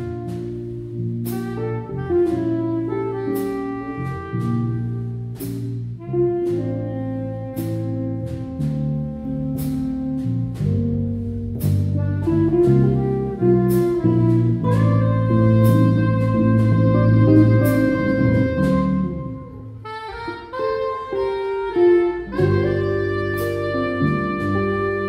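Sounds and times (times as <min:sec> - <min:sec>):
soprano saxophone melody: 0:00.0 - 0:05.4, 0:06.0 - 0:11.2, 0:12.0 - 0:25.0
drum-kit strokes: 0:00.0 - 0:25.0
jazz combo playing a slow ballad: 0:00.0 - 0:25.0.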